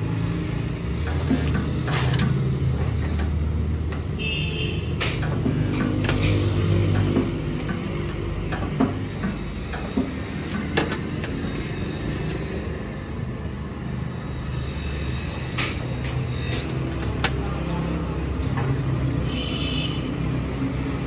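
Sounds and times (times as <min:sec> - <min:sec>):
sharp welding clicks: 0:05.0 - 0:09.5.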